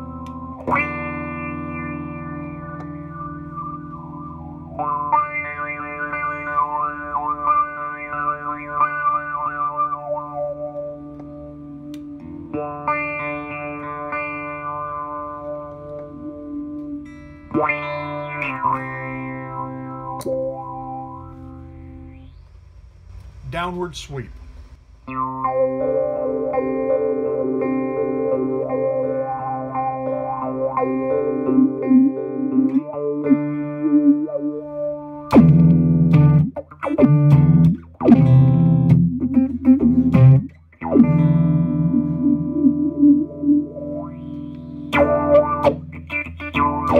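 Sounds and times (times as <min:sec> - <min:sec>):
filtered electric guitar chords: 0:00.0 - 0:22.4, 0:25.0 - 0:46.9.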